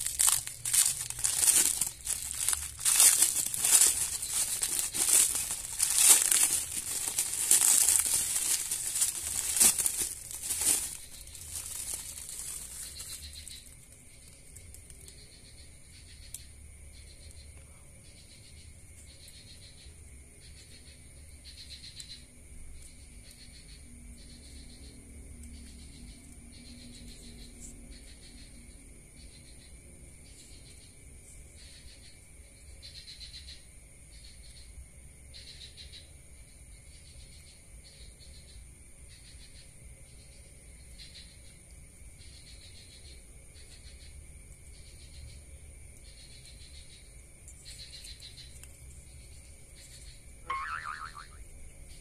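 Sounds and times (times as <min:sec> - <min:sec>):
plastic wrapping crinkling: 0:00.0 - 0:14.9.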